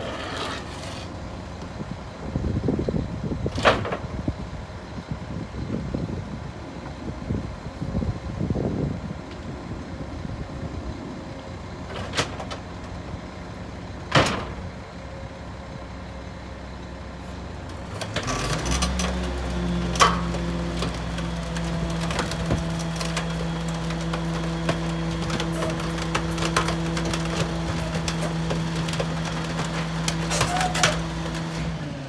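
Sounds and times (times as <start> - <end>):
diesel engine idling: 0.0 - 32.0
wood debris knocking in hopper: 17.7 - 31.8.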